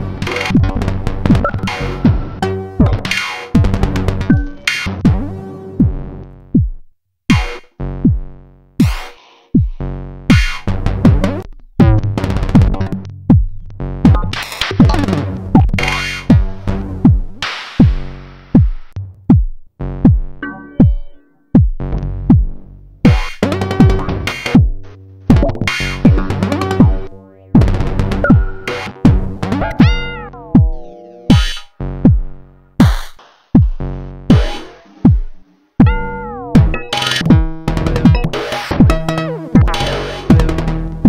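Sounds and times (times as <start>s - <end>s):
glitchy electronic beat: 0.0s - 19.4s, 20.0s - 41.0s
pitch-dropping kick drums: 0.0s - 41.0s.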